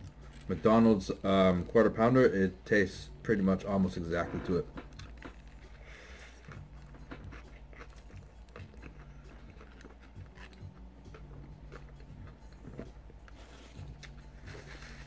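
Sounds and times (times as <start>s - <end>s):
person chewing: 4.8s - 15.0s.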